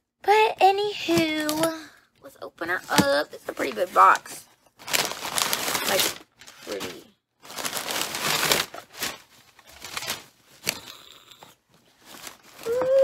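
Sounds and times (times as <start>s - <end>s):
packing material crumpling: 3.5s - 11.2s, 11.9s - 13.0s.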